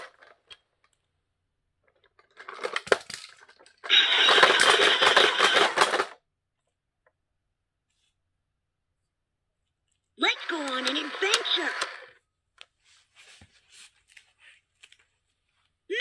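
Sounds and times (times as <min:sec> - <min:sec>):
plastic toy truck clicks and rattles: 0:00.0 - 0:01.0, 0:01.8 - 0:06.2.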